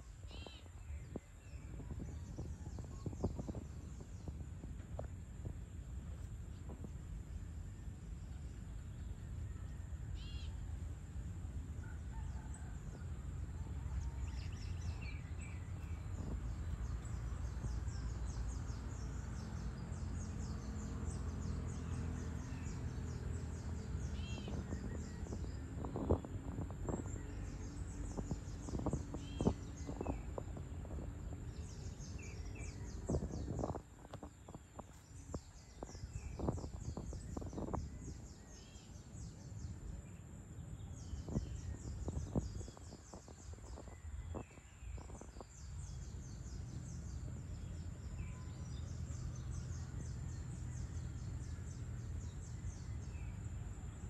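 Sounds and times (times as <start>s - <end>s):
bird chirps: 0.1s - 4.4s, 8.4s - 10.6s, 14.1s - 40.0s.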